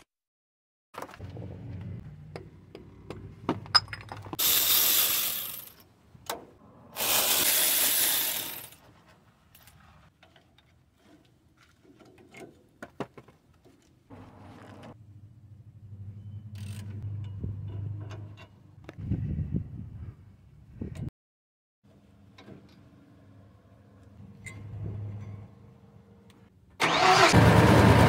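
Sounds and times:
metal tools clinking and rattling: 3.6s - 5.8s.

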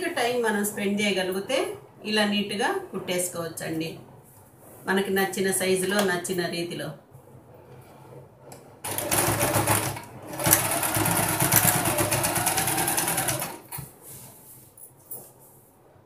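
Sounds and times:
electric sewing machine stitching: 8.8s - 13.8s.

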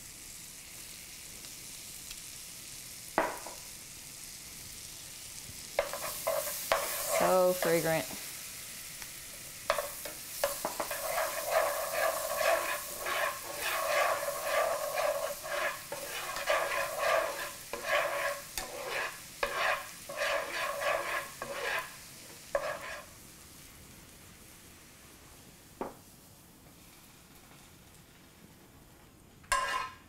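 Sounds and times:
garlic sizzling in a pan: 0.0s - 30.0s
metal spoon stirring and scraping: 5.8s - 7.9s, 9.7s - 23.1s, 29.5s - 30.0s.

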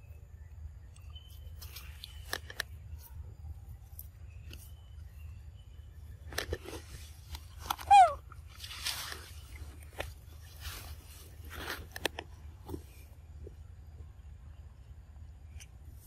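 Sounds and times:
monkeys clicking and rustling: 6.2s - 13.1s
monkey squeak: 7.8s - 8.2s.

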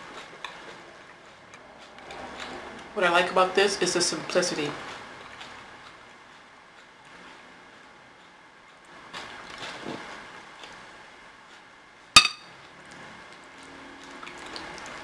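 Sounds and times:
spoon clinking on ceramic bowl: 12.2s - 12.5s.

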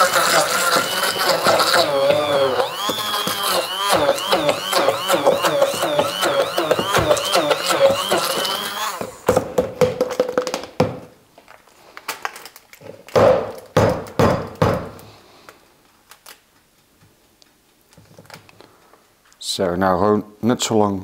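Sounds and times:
stick blender whirring: 0.0s - 9.6s
knocks of blender and plastic jug: 6.6s - 8.0s.

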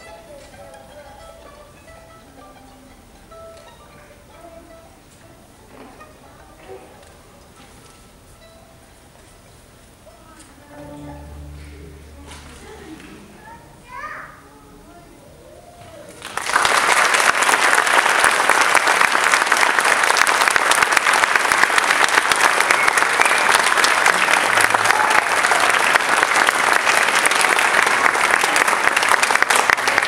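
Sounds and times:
audience clapping: 16.1s - 30.0s.

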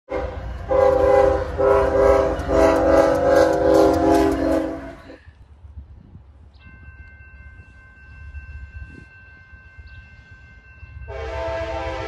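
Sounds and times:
locomotive air horn blasts: 0.1s - 5.2s, 11.1s - 12.0s.

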